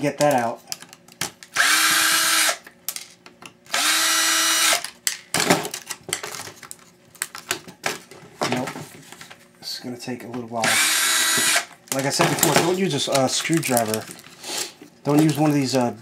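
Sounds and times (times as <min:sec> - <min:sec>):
cordless drill motor whine: 0:01.6 - 0:02.6, 0:03.7 - 0:04.8, 0:10.6 - 0:11.7.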